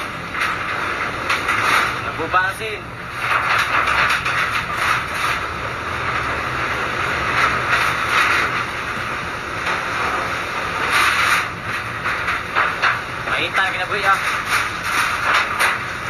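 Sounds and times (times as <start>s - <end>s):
wind and rain on a metal roof: 0.0s - 16.0s.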